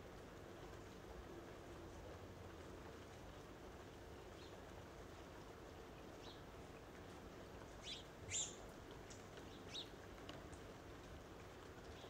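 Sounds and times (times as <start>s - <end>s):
rain falling: 0.0s - 12.0s
bird chirping: 7.8s - 8.6s.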